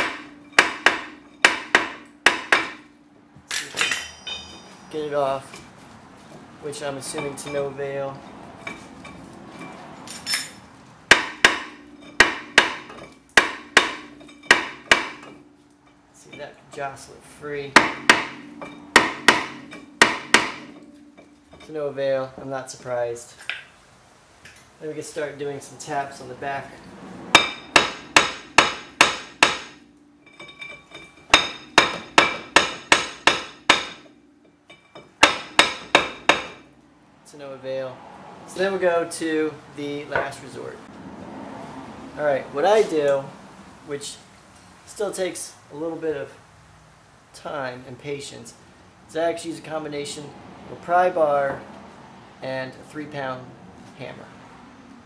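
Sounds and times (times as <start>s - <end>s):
hammer striking metal rotor: 0.0s - 3.1s, 10.3s - 16.0s, 17.7s - 21.7s, 27.3s - 36.8s
metal disc ringing: 0.0s - 5.6s, 6.9s - 8.0s, 8.6s - 22.2s, 27.3s - 37.1s.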